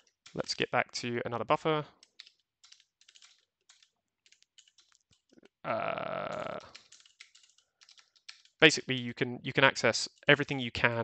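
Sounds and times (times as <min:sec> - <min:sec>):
keyboard typing: 0:00.0 - 0:00.6, 0:01.9 - 0:09.0.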